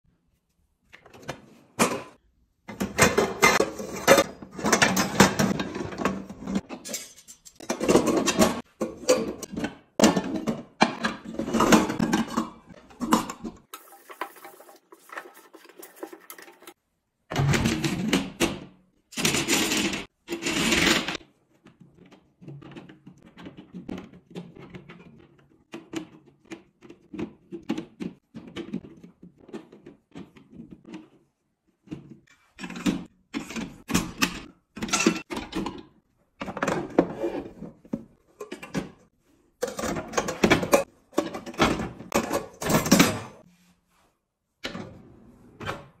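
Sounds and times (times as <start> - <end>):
pots and pans clattering: 1.8 - 16.8, 32.6 - 35.8, 39.6 - 43.5.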